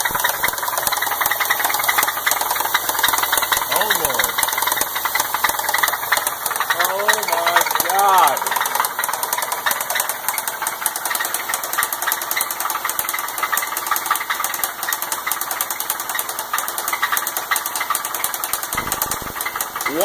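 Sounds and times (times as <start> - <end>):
car engine idling: 0.0 - 20.0
engine rapping knock: 0.0 - 20.0.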